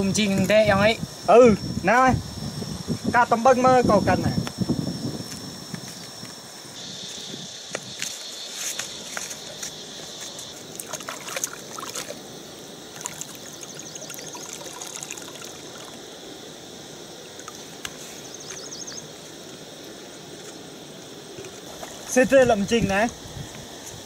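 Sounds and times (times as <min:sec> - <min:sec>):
leaf and plastic bottle rustling: 0:07.7 - 0:12.2
stream trickling over rock: 0:10.6 - 0:16.1.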